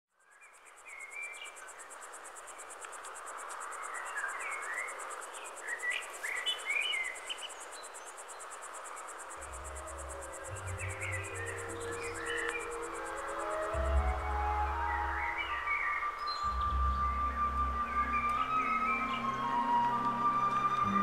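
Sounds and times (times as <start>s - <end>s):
small birds chirping: 0.2s - 20.3s
crickets chirping: 0.2s - 21.0s
low music tones: 9.4s - 21.0s.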